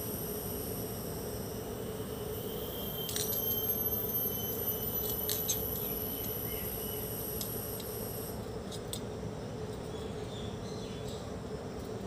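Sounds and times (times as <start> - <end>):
high-pitched whine: 0.0 - 8.8
steady low hum: 0.0 - 12.0.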